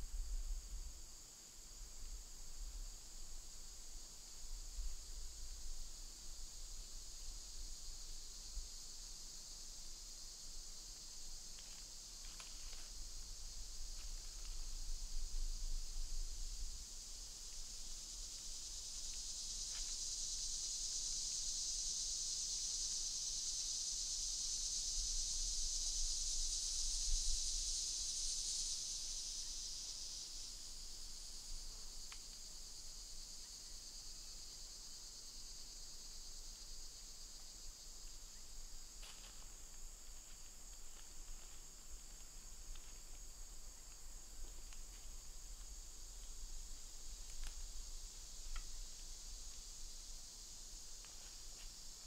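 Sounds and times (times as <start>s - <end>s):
insects chorus: 0.0s - 52.0s.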